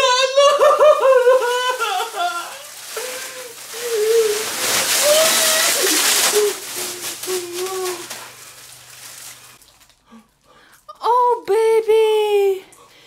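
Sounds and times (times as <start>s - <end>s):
wrapped candies pouring from plastic bag: 0.4s - 10.2s
person humming and moaning: 1.2s - 8.2s.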